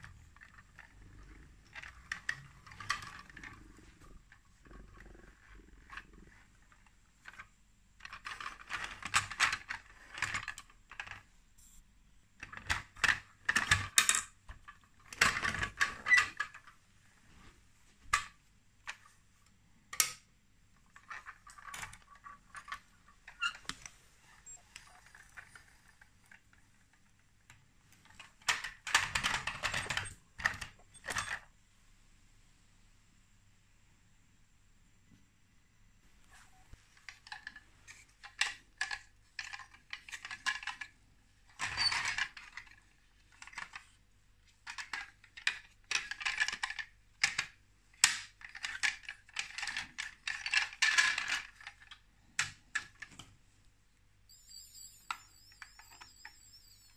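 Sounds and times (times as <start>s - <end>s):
toy truck wheels rolling and rattling: 0.0s - 11.3s, 20.9s - 27.4s, 28.0s - 31.4s, 37.0s - 44.0s, 44.6s - 52.0s, 54.3s - 56.9s.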